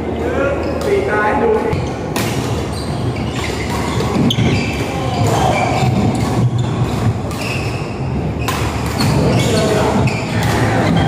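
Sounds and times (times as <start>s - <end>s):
rackets hitting shuttlecock: 2.1s - 2.7s, 3.3s - 11.0s.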